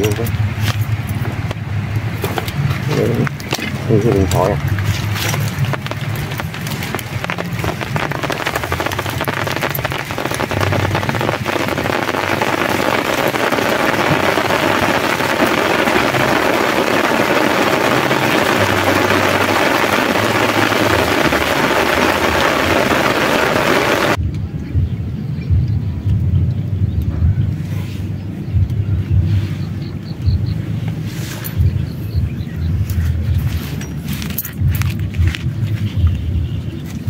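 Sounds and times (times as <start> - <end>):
heavy rain falling: 0.0 - 24.2
wind: 0.0 - 37.0.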